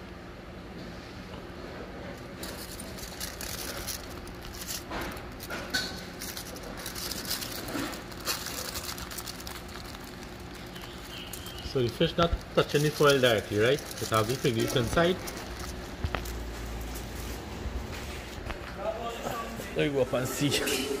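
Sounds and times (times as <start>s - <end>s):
aluminium foil crinkling: 2.1s - 18.6s.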